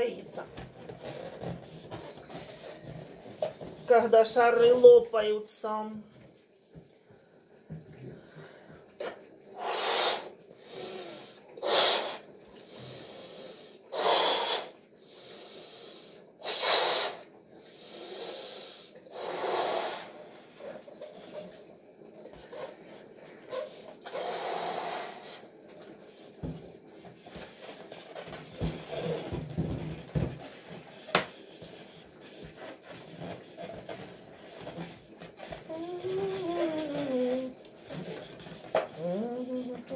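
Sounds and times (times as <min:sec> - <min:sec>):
rubbery balloon rustles: 0:00.0 - 0:05.0, 0:19.2 - 0:39.9
breaths blowing up balloon: 0:09.0 - 0:20.7, 0:23.4 - 0:25.6, 0:27.3 - 0:39.9.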